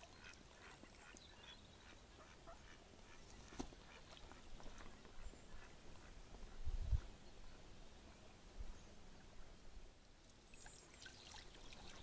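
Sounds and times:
soft duck calls: 0.0s - 7.1s
faint water splashing: 0.0s - 12.0s.

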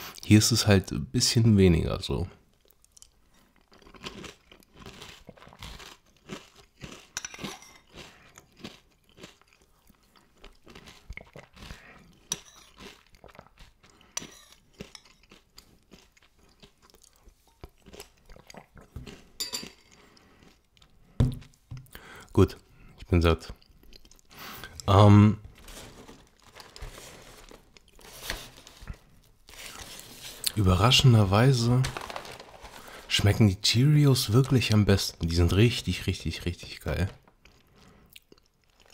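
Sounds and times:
person chewing crunchy cereal: 2.5s - 33.4s, 37.2s - 38.9s.

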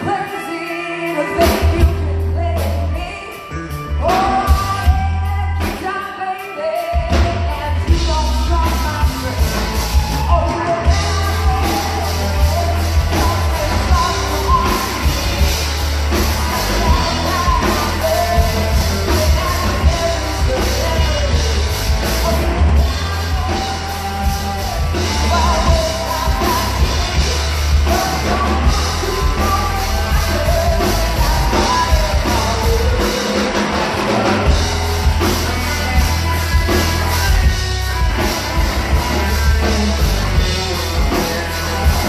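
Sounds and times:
woman singing into microphone: 0.0s - 38.1s
drums: 0.0s - 42.0s
electric guitar: 0.0s - 42.0s.

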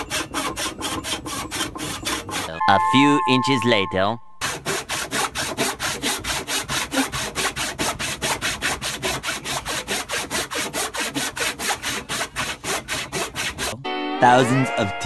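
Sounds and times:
hand saw cutting wood: 0.0s - 2.6s, 4.4s - 13.8s.

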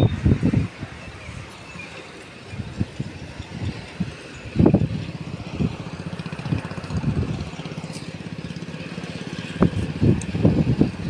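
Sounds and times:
diesel engine idling: 2.6s - 11.0s.

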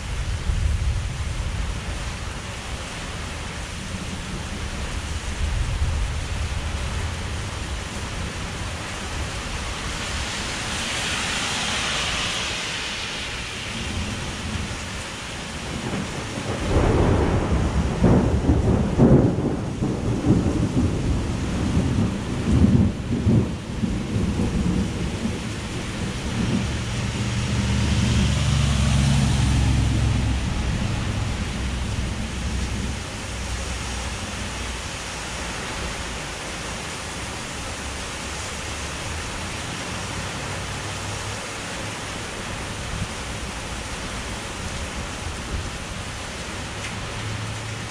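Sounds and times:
thunder crackling and rumbling: 0.0s - 10.2s, 13.7s - 34.8s
heavy rain pouring: 0.0s - 47.9s.

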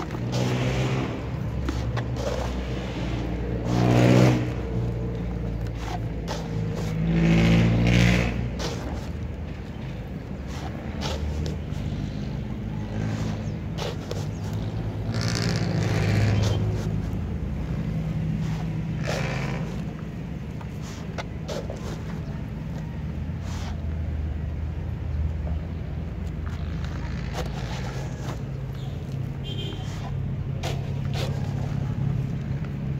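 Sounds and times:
plastic scoop scraping soil: 0.0s - 9.3s, 10.3s - 12.3s, 26.8s - 28.6s
road traffic rumble: 0.0s - 32.9s.

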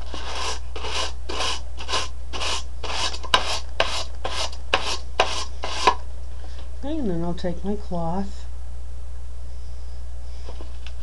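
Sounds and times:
stiff brush scrubbing plastic: 0.0s - 6.0s.

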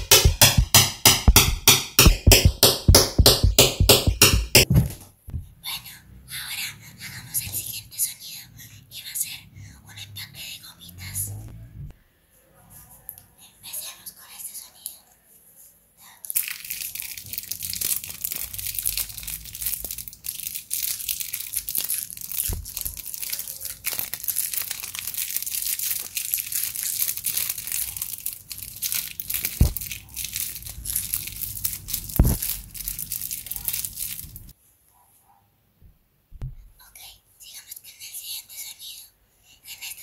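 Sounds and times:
plastic wrapper crinkling: 16.3s - 34.5s.

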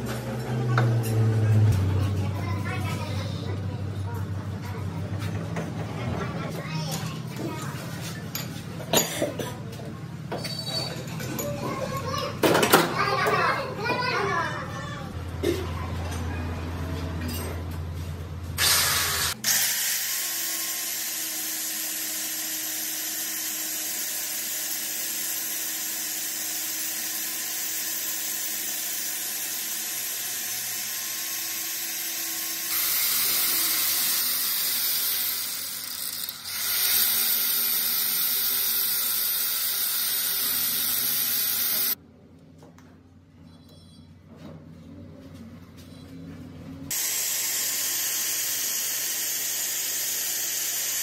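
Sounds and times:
angle grinder grinding steel: 18.6s - 42.0s, 46.9s - 51.0s.

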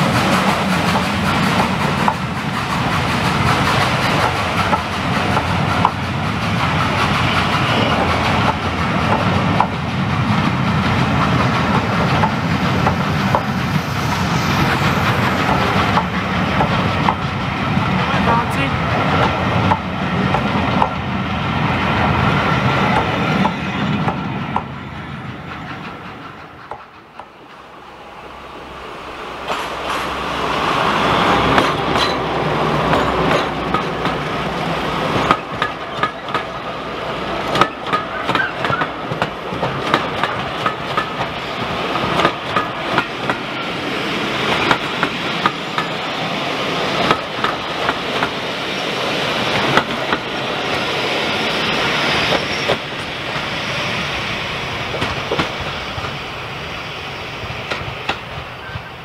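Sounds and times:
train wheels clacking over rail joints: 0.0s - 18.4s, 25.3s - 27.7s, 29.4s - 30.2s, 31.3s - 36.6s, 37.4s - 43.6s, 44.3s - 46.0s, 47.0s - 48.5s, 49.3s - 51.0s, 54.8s - 56.2s
train rumble: 0.0s - 59.0s.

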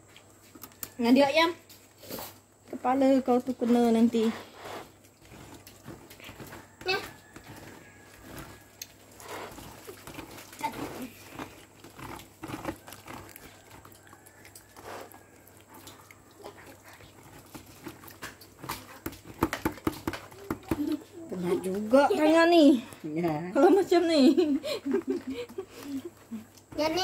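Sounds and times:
dough scraped through bamboo sieve: 3.6s - 13.6s.

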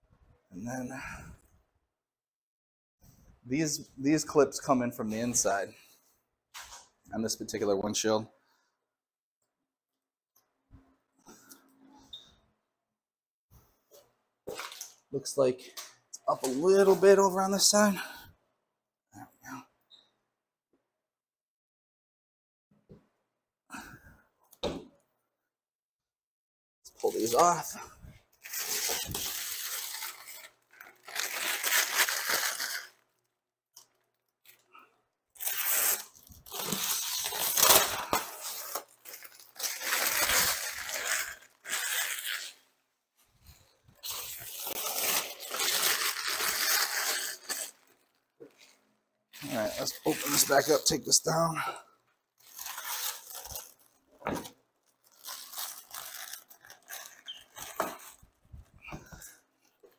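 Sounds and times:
plastic wrap rustling and tearing: 26.9s - 27.8s, 28.4s - 34.7s, 35.4s - 42.6s, 43.4s - 51.5s, 52.4s - 59.9s
plastic film peeling: 28.4s - 34.7s, 35.4s - 42.6s, 44.0s - 48.8s, 49.4s - 51.4s, 52.4s - 59.9s.

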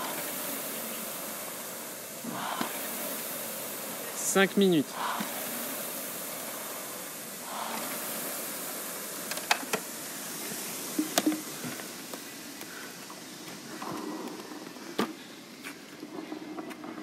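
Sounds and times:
rowing machine flywheel whirring: 0.0s - 17.0s
sharp clicks and knocks: 11.0s - 12.7s.

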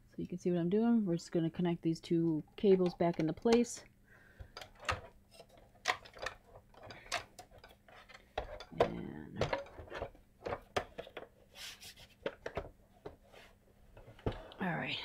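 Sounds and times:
plastic housing clicks and knocks: 2.6s - 3.8s, 4.4s - 11.3s.

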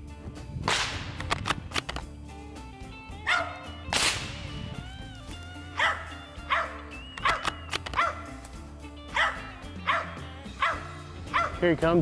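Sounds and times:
background music: 0.0s - 12.0s
rifle shot echo: 0.7s - 1.8s, 3.9s - 4.6s
dog barking: 3.2s - 3.6s, 5.8s - 8.3s, 9.1s - 11.6s.

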